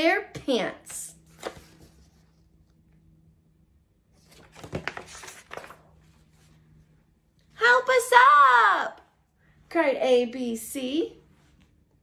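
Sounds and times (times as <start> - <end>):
paper pages rustling: 1.2 - 2.5, 4.1 - 6.6.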